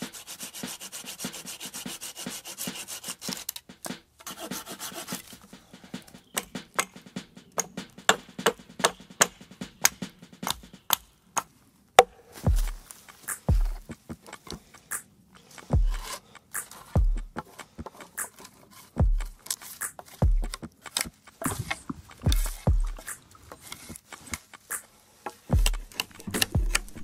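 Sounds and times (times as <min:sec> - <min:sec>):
hatchet chopping wood: 0:07.6 - 0:12.2.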